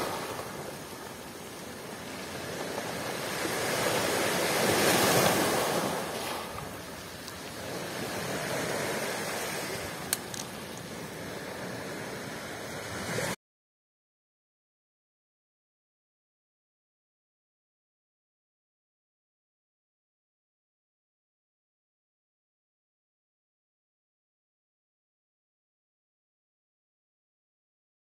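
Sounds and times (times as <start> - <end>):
surf breaking over rocks: 0.0 - 13.4.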